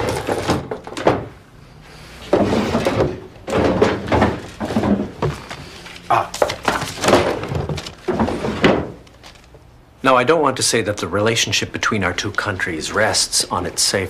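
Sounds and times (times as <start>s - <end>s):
rummaging in wooden drawer: 0.0s - 1.1s, 2.2s - 9.5s
envelope rustling: 5.3s - 8.4s, 9.0s - 9.6s.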